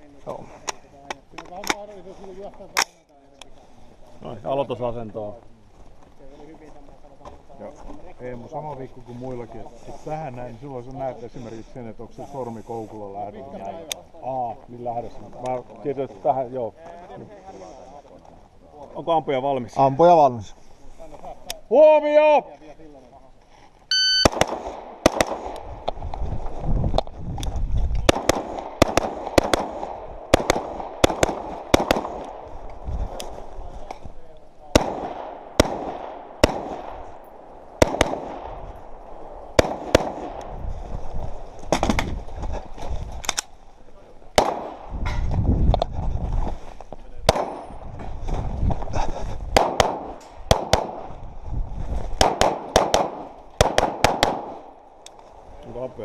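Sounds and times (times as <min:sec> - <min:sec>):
pistol shots: 0:24.0 - 0:25.6, 0:28.0 - 0:32.5, 0:34.7 - 0:37.0, 0:37.7 - 0:38.6, 0:39.5 - 0:40.4, 0:44.4 - 0:44.9, 0:47.3 - 0:47.7, 0:49.6 - 0:51.1, 0:52.2 - 0:54.7
rifle gunshots: 0:24.0 - 0:25.6, 0:28.0 - 0:32.6, 0:34.7 - 0:40.5, 0:44.4 - 0:44.9, 0:47.3 - 0:47.7, 0:49.6 - 0:51.1, 0:52.2 - 0:54.8.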